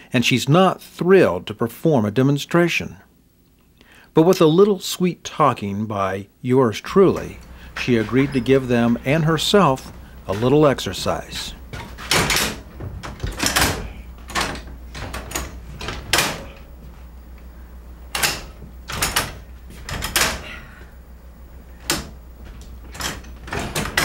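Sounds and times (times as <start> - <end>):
heavy levers clanking: 7.0 - 16.8, 18.1 - 20.7, 21.8 - 24.0.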